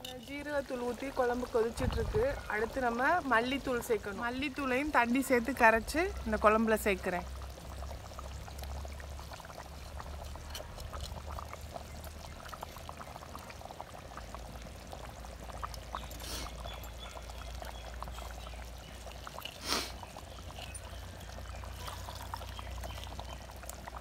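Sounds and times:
water trickling and gurgling: 0.0s - 24.0s.

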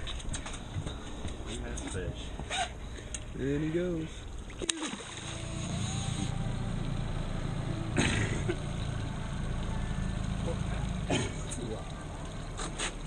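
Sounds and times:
fish splashing into water: 4.4s - 5.8s.

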